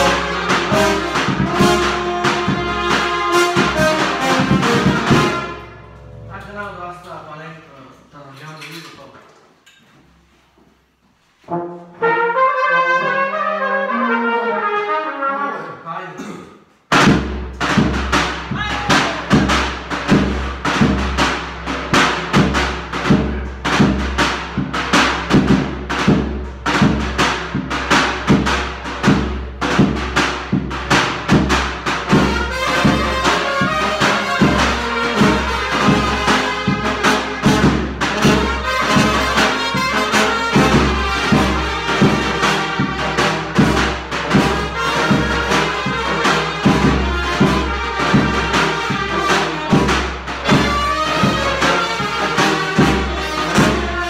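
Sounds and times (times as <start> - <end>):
brass band playing: 0.0 - 7.1, 11.3 - 15.8, 16.9 - 54.0
bass drum beat: 17.0 - 21.2, 40.6 - 51.6.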